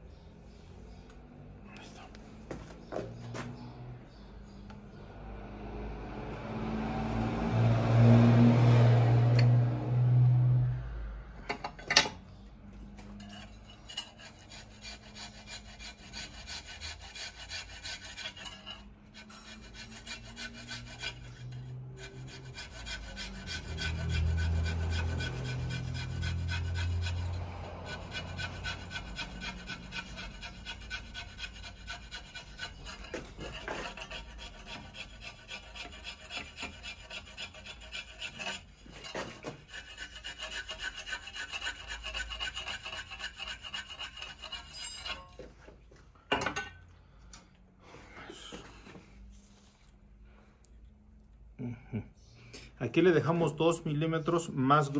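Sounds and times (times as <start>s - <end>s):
hand file rasping on metal: 13.1s - 45.6s.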